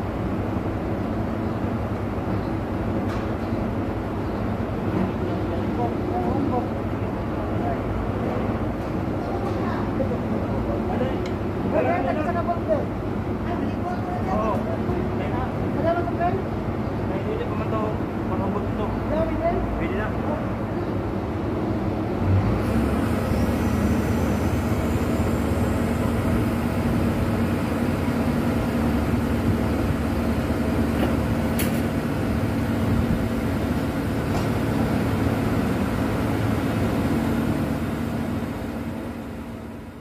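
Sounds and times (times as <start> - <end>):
large engine humming: 21.0 - 40.0.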